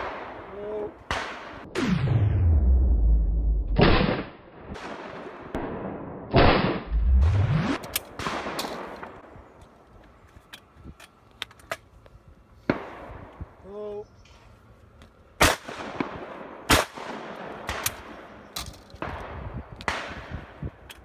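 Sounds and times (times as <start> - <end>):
shotgun shots echoing: 0.0 - 2.2, 3.7 - 6.9, 7.7 - 9.2, 15.4 - 18.3
sharp crack: 0.0 - 9.2, 15.4 - 20.4.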